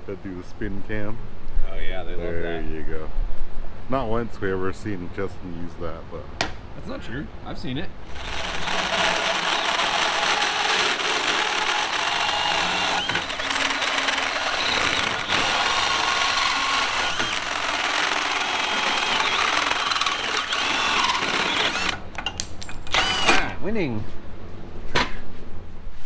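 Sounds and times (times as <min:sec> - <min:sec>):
drill hole saw cutting metal: 0:08.1 - 0:22.0, 0:22.9 - 0:23.6.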